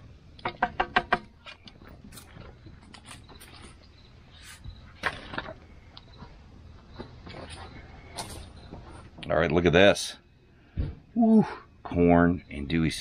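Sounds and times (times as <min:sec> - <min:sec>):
handling noise: 0:00.4 - 0:09.3.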